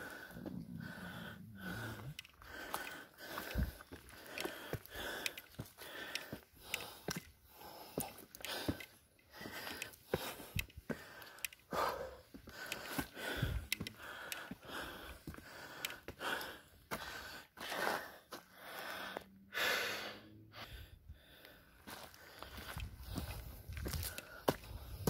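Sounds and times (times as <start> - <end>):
person breathing hard: 0.0 - 25.0
faint footfalls on stone: 2.5 - 16.1, 21.9 - 25.0.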